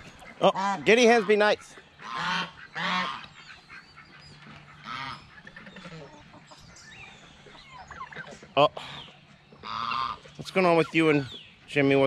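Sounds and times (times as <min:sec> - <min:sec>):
chickens clucking: 0:00.0 - 0:12.0
goose honk: 0:00.1 - 0:06.3, 0:09.6 - 0:10.3.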